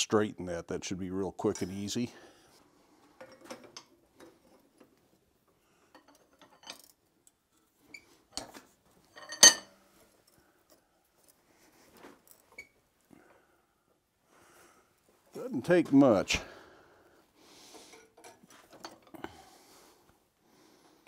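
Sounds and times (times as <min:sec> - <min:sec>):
metal tongs clinking on steel: 0:09.1 - 0:09.7.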